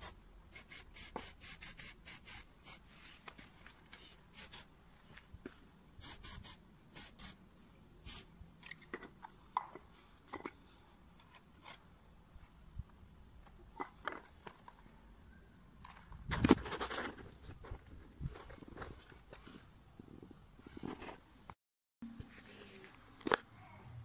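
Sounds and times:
spray-paint can hissing: 0.0 - 2.8, 4.3 - 4.7, 6.0 - 7.4, 8.0 - 8.3.

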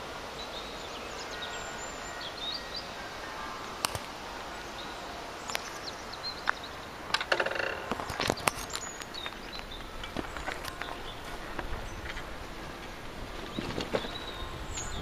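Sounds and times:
small birds chirping: 0.0 - 15.0
steady outdoor hiss: 0.0 - 15.0.

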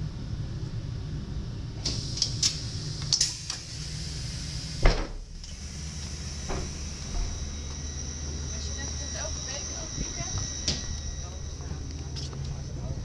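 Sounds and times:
low steady hum: 0.0 - 13.0
door mechanism clicks and hisses: 1.8 - 7.3
heavy door thump: 4.8 - 5.3, 6.4 - 7.5.

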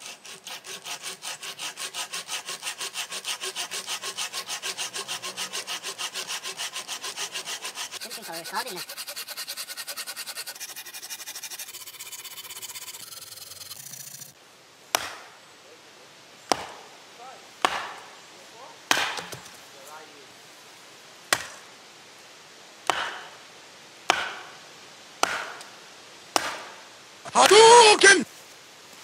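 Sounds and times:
saw rasping through a log: 0.0 - 14.4
hatchet chopping firewood: 14.9 - 15.3, 16.5 - 16.9, 17.6 - 18.1, 18.9 - 19.6, 21.3 - 21.6, 22.8 - 23.4, 24.1 - 24.6, 25.2 - 26.8.

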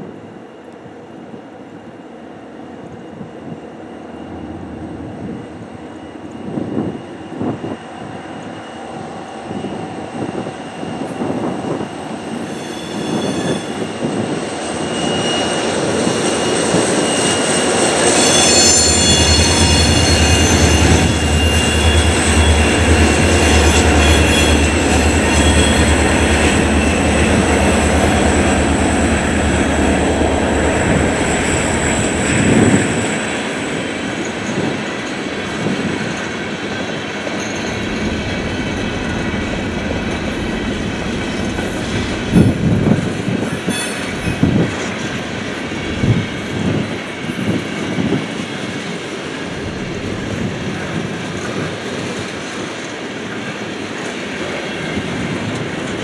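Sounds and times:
diesel locomotives rumbling: 3.1 - 56.0
high-pitched squealing: 11.3 - 34.8.

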